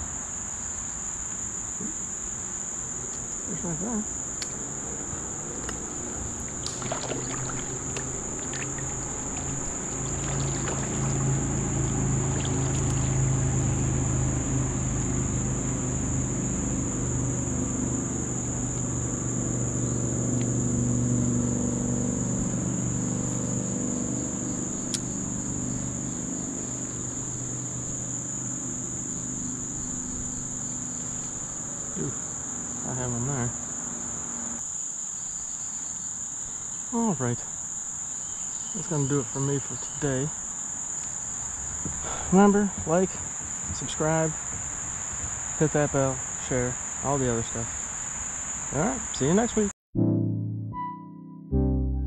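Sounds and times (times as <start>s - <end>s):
high-pitched insect chorus: 0.0s - 49.7s
low engine hum: 2.9s - 34.6s, 41.0s - 47.8s.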